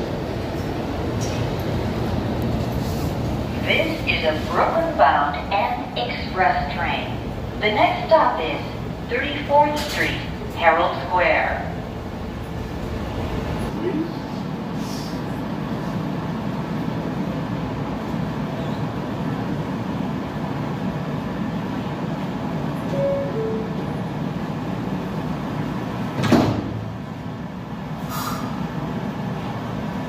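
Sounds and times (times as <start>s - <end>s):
subway train humming: 0.0s - 30.0s
sliding doors closing thump: 26.1s - 27.0s
short hiss: 28.1s - 28.5s.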